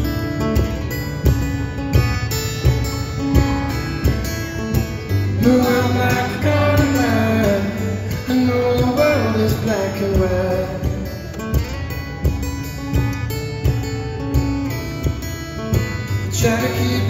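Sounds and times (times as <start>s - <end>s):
fingerstyle acoustic guitar: 0.0s - 17.0s
man singing: 5.2s - 11.4s, 16.2s - 17.0s.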